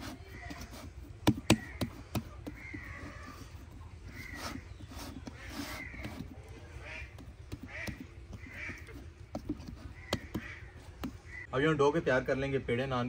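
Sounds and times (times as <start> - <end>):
bird calls: 0.0 - 11.5
sharp knocks: 1.2 - 3.0, 7.2 - 11.2.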